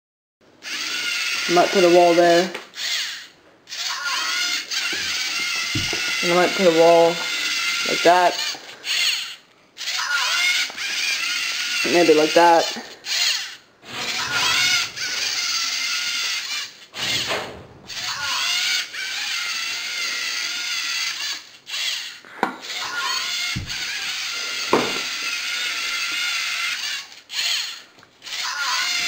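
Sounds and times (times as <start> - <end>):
robot servo motors whining: 2.8 - 12.4, 13.1 - 29.0
sharp knocks: 5.7 - 6.1.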